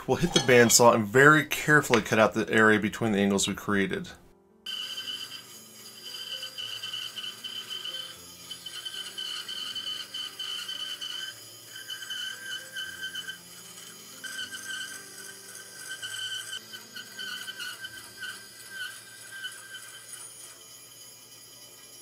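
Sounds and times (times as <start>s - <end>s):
held high tones: 4.7s - 22.0s.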